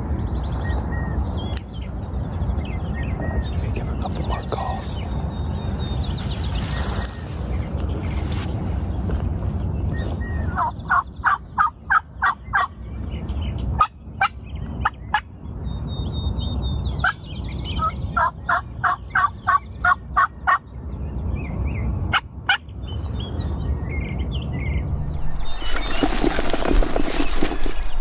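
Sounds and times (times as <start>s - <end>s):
wild turkeys calling: 17.8s - 20.6s.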